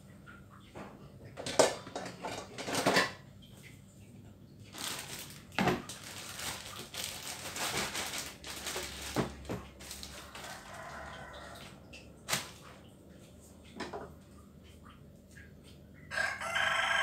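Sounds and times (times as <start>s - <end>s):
kitchen clicks and knocks: 0.8s - 3.2s
plastic bag crinkling: 4.7s - 11.1s, 12.3s - 12.6s.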